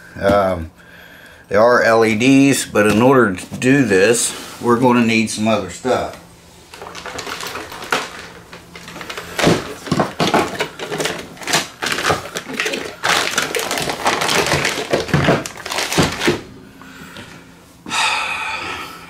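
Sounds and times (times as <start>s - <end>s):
plastic crinkling and rustling: 6.0s - 16.5s
items thunking down: 6.7s - 17.4s.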